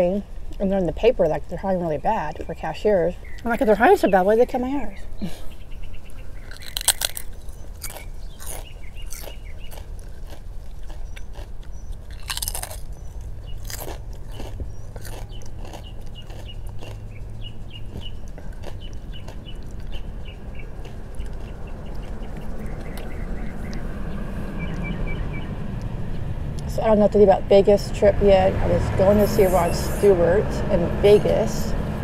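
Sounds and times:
crunching potato chips: 6.4 - 23.8.

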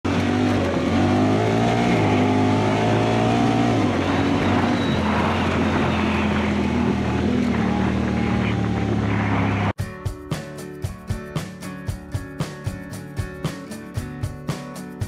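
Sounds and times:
utility vehicle engine running: 0.0 - 9.8.

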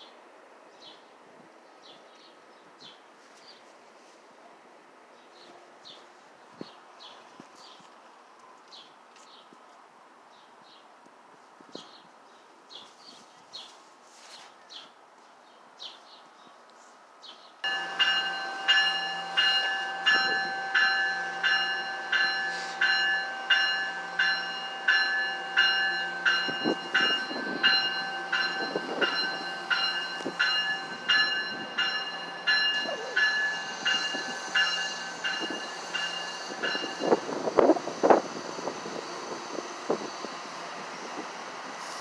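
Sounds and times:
train warning bell ringing: 17.6 - 38.2.

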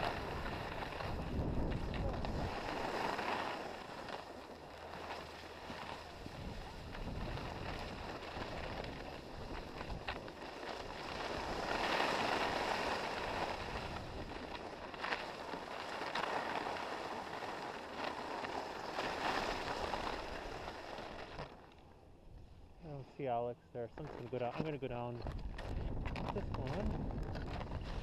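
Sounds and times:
wind noise on microphone: 0.0 - 3.9, 5.6 - 15.2, 25.1 - 28.0
sharp ski scrapes: 0.0 - 21.6
skis sliding over snow: 0.0 - 21.8, 22.9 - 28.0.

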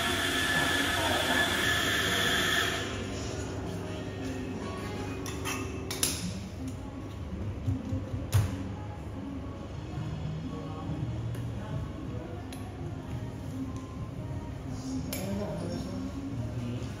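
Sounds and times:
coffee grinder whirring: 0.0 - 3.0.

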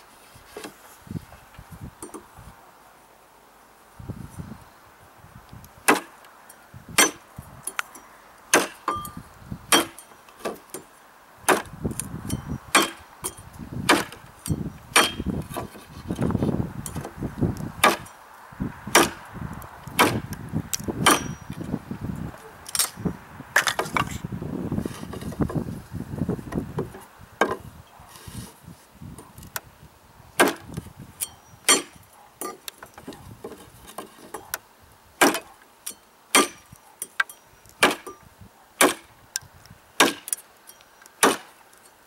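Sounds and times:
knife chopping into wood: 5.9 - 6.1, 8.5 - 9.0, 9.7 - 10.6, 11.5 - 11.8, 12.8 - 13.0, 13.9 - 14.2, 15.0 - 15.8, 17.8 - 18.1, 18.9 - 19.2, 20.0 - 20.3, 21.0 - 21.4, 30.4 - 30.8, 35.2 - 35.5, 36.4 - 36.7, 37.8 - 38.1, 38.8 - 39.1, 40.0 - 40.4, 41.2 - 41.5.

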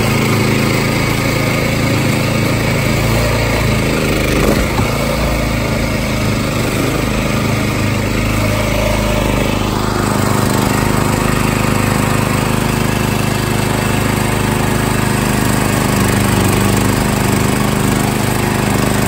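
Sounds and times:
boat engine running: 0.0 - 19.0
water churning: 2.4 - 8.8.

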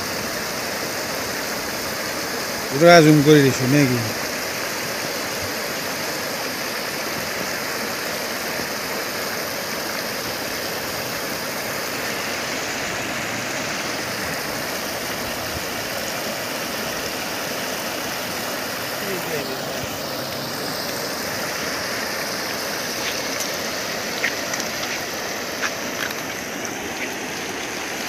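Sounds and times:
floodwater rushing: 0.0 - 28.0.

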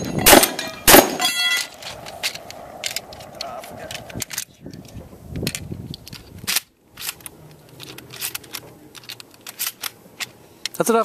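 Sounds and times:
shells clicking and clacking: 0.0 - 10.9
shotgun shot: 0.2 - 1.3.

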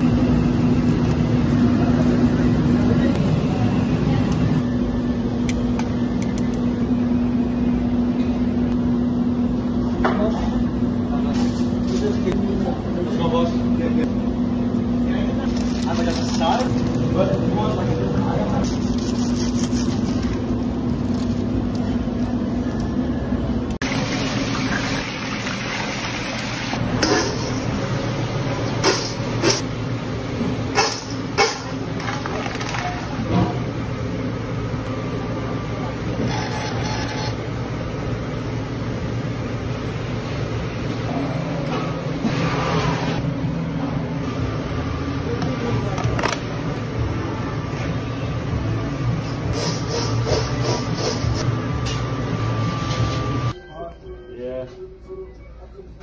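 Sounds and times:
kitchen equipment humming: 0.0 - 53.8
deep-fryer oil sizzling: 23.8 - 29.1.

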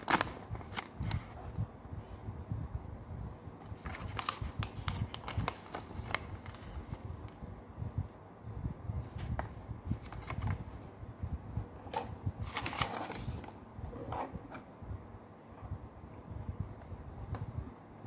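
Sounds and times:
paper leaflet rustling and crinkling: 0.0 - 1.5, 3.8 - 7.0, 9.2 - 10.7, 11.9 - 13.6.

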